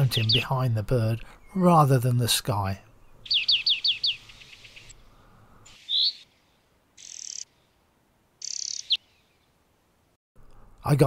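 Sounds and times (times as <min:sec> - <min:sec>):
finch singing: 0:00.0 - 0:01.8, 0:02.9 - 0:05.0, 0:05.7 - 0:06.4, 0:07.0 - 0:07.5, 0:08.4 - 0:09.4.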